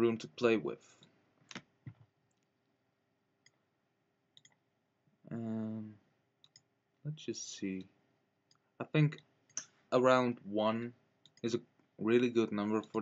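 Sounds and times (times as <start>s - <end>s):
computer mouse clicks: 4.4s - 4.6s, 6.4s - 6.7s, 11.2s - 11.6s, 12.7s - 13.0s
man humming: 5.3s - 6.0s.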